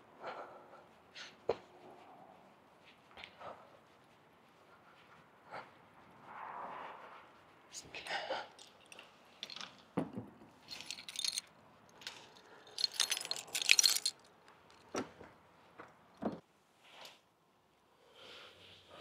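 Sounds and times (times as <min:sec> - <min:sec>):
small hard objects jangling: 0:08.5 - 0:10.0, 0:10.6 - 0:14.9.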